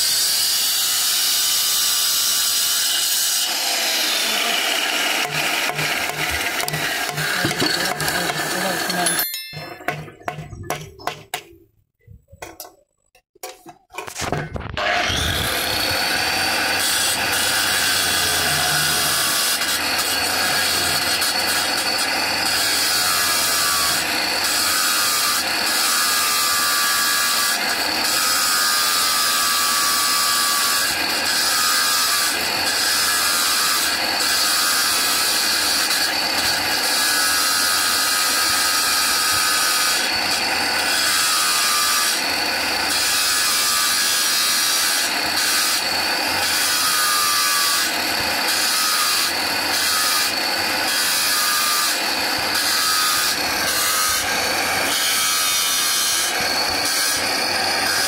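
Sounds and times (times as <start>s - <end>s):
stone grinding: 5.2s - 11.6s.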